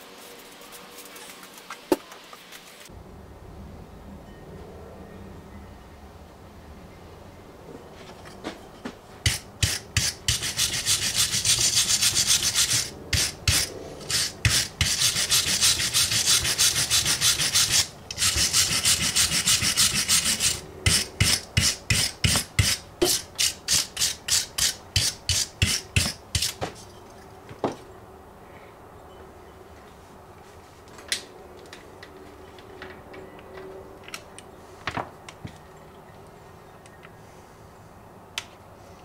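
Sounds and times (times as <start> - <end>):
hand tool scraping battery top: 9.3 - 26.8.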